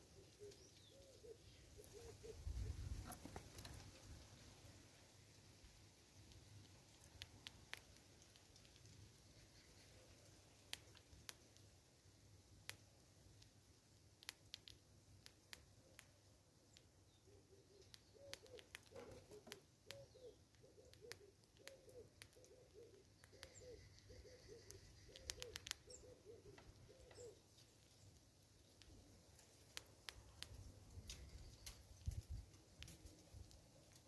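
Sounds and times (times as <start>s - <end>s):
bird calling low notes: 0.0s - 3.0s, 17.2s - 27.4s
faint sharp clicks: 6.2s - 11.7s, 12.6s - 13.6s, 14.2s - 16.9s, 17.7s - 27.7s, 28.6s - 34.0s.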